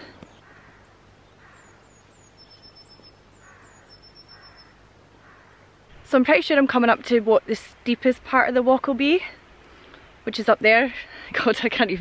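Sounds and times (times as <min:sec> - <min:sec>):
rough low bird calls: 0:00.0 - 0:06.0
high falling bird chirps: 0:00.2 - 0:05.6
thin high bird trill: 0:01.5 - 0:04.8.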